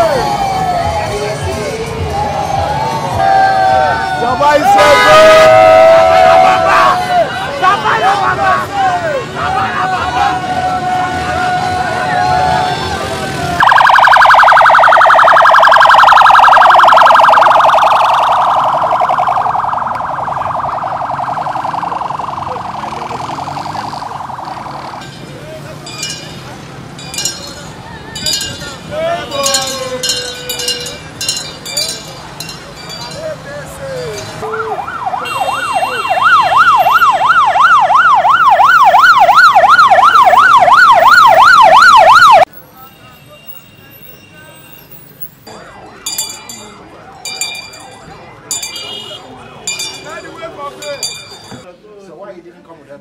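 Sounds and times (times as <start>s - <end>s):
electronic siren warbling: 13.6s - 25.0s.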